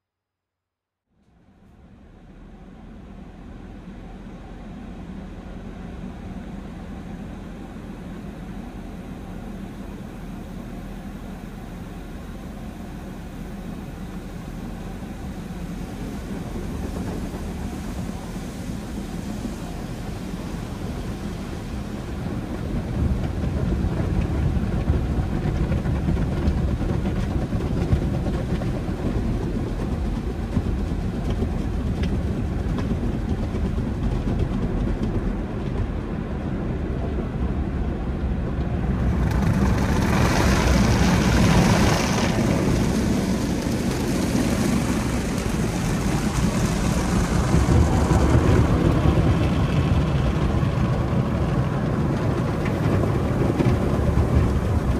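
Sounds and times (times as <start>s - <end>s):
car wash equipment rumbling: 1.2s - 54.9s.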